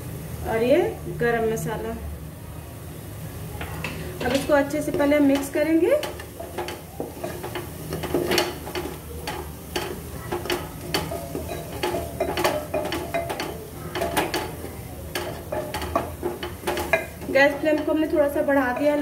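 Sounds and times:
faint frying sizzle: 0.0 - 19.0
wooden spatula scraping a pan: 3.8 - 19.0.

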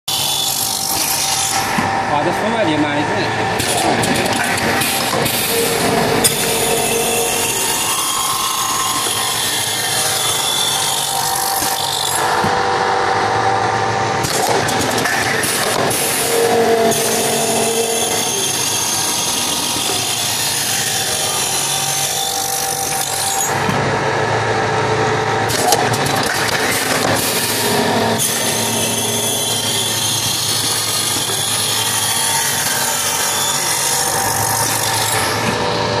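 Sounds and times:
motor hum: 0.6 - 32.7
machine milling brass: 3.6 - 13.0, 14.2 - 23.7, 25.4 - 35.9.

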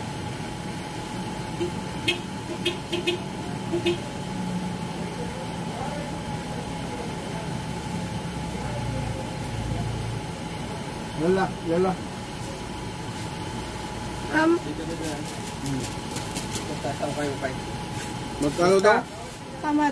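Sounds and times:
low machine hum: 0.0 - 19.9.

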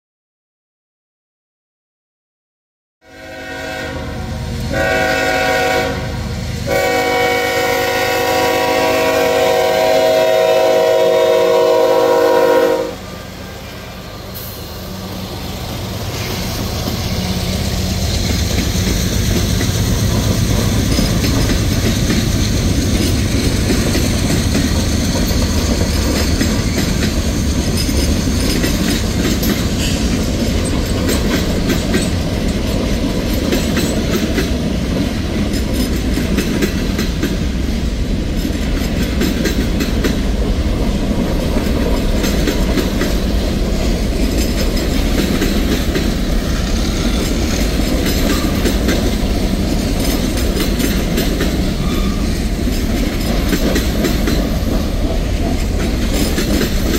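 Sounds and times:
locomotive horn blasts: 3.0 - 13.8
train rumbling past: 3.0 - 56.9.

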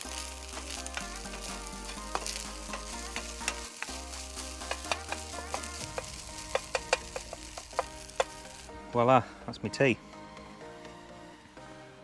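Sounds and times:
food sizzling in a frying pan: 0.0 - 8.8
spatula scraping and clicking on pan: 0.9 - 4.0.

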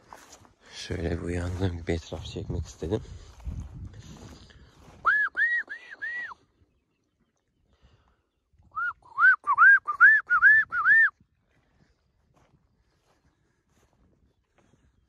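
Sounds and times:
person whistling short notes: 5.0 - 6.4, 8.7 - 11.1.

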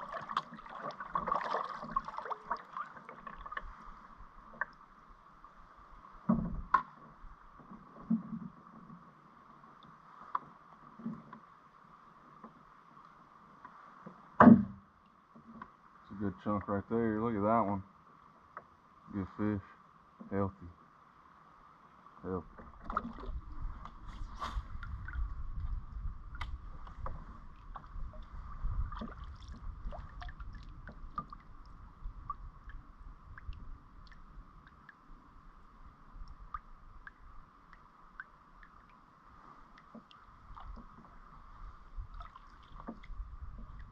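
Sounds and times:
steady low rumble: 23.3 - 38.2.

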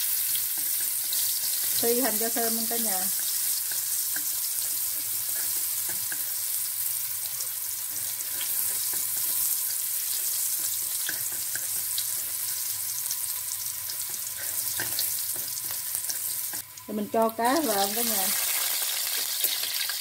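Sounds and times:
shallots sizzling in hot oil: 0.0 - 20.0
spatula scraping a wok: 2.7 - 16.6.

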